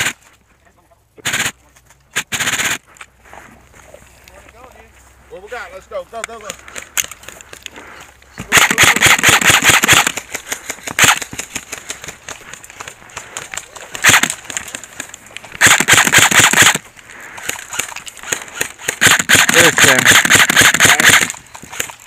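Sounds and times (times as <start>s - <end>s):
airsoft rifles firing bursts: 1.2s - 1.6s, 2.2s - 2.8s, 8.4s - 12.2s, 13.1s - 14.8s, 15.6s - 16.8s, 17.4s - 22.0s.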